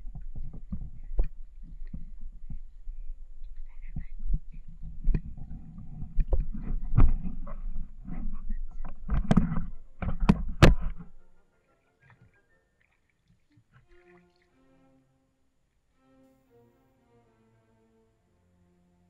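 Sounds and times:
wind rumble on microphone: 0:00.0 - 0:11.2
handling knocks on microphone: 0:04.9 - 0:11.1.

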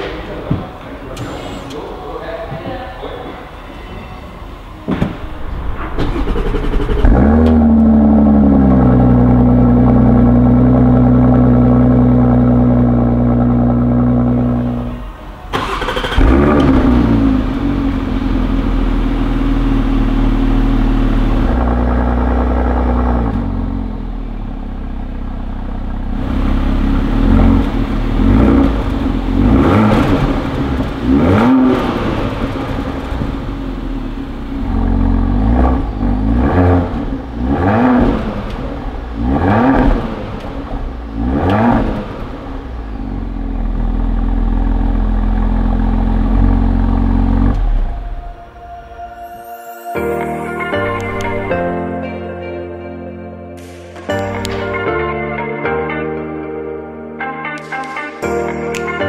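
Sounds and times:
car engine idling: 0:04.6 - 0:49.1
engine throttle blips: 0:04.9 - 0:49.0.

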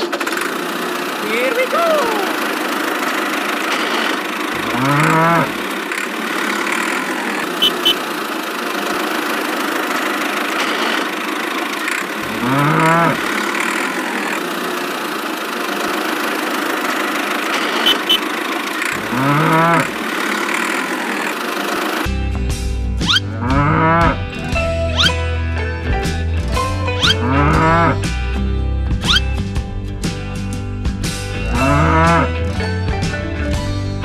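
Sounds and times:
steady engine hum: 0:00.0 - 0:34.0
cow mooing: 0:04.6 - 0:05.6, 0:12.2 - 0:13.4, 0:18.9 - 0:20.0, 0:23.1 - 0:24.2, 0:27.0 - 0:28.0, 0:31.5 - 0:32.4.

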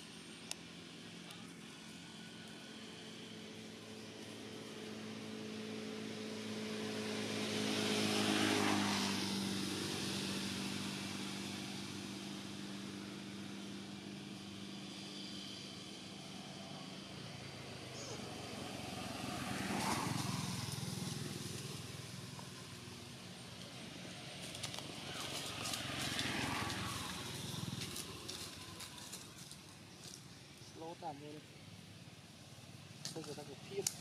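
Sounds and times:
vehicle engine passing by: 0:00.0 - 0:34.0.

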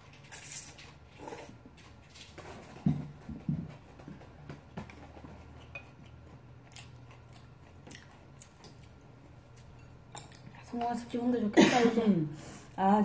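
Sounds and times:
chewing: 0:03.7 - 0:10.9.

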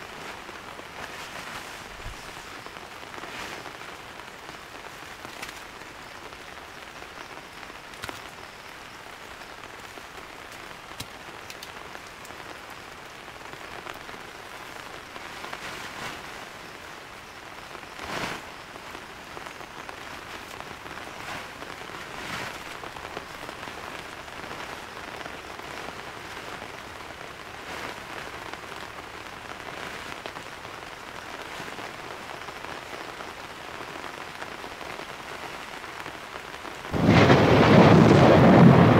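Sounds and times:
heavy rain falling: 0:00.0 - 0:38.9
loud raindrop hits: 0:36.9 - 0:38.9.

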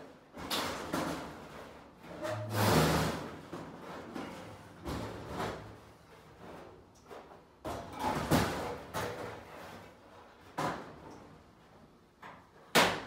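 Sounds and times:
sheet metal clunks and scrapes: 0:00.5 - 0:05.6.

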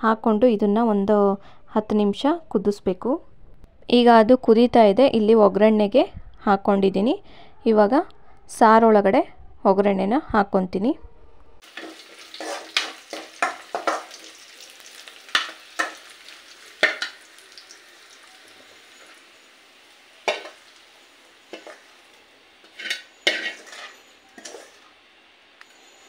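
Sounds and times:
faint frying sizzle: 0:11.6 - 0:26.0
spoon scraping metal pan: 0:11.7 - 0:14.3, 0:20.2 - 0:25.0.

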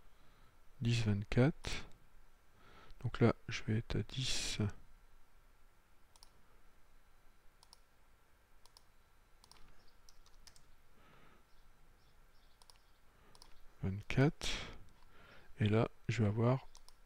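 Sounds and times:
thin steady hum: 0:00.0 - 0:17.0
computer mouse clicks: 0:06.1 - 0:06.4, 0:07.6 - 0:07.9, 0:08.6 - 0:10.8, 0:12.5 - 0:13.6, 0:16.7 - 0:17.0.

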